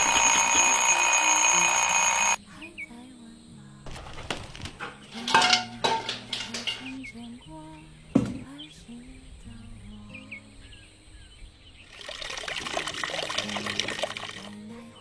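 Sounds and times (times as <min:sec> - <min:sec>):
alarm clock ringing: 0:00.0 - 0:02.4.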